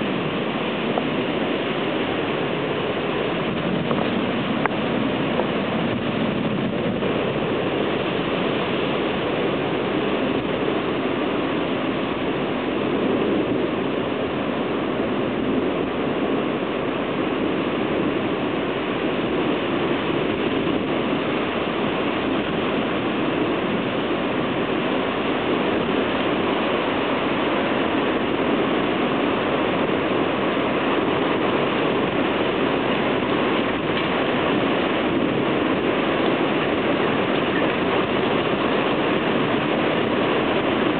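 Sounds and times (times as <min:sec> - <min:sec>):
heavy rain pouring: 0:00.0 - 0:40.9.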